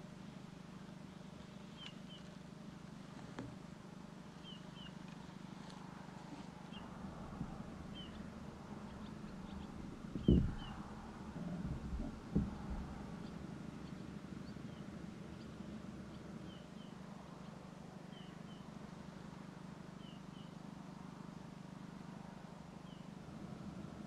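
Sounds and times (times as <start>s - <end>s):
faint low hum: 0.0s - 24.0s
small bird chirping: 1.7s - 2.3s, 4.4s - 5.1s, 7.8s - 18.7s.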